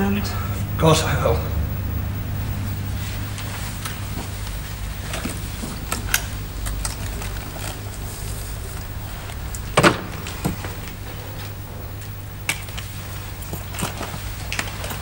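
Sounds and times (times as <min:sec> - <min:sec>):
steady low hum: 0:00.0 - 0:15.0
papers rustling: 0:03.0 - 0:11.6.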